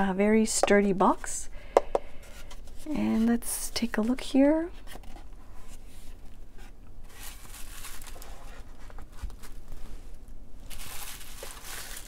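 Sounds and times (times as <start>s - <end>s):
bubble wrap crinkling: 7.0s - 12.0s.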